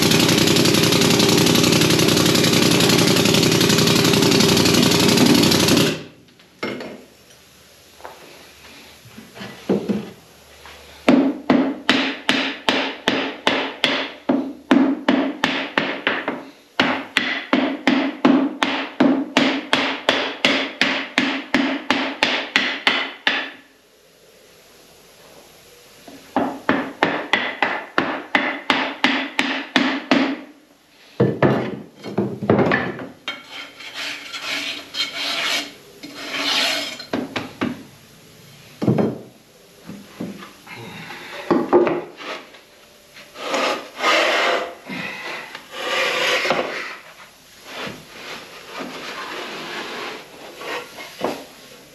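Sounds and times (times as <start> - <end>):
bar scraping sand: 33.3 - 37.0, 45.7 - 51.2.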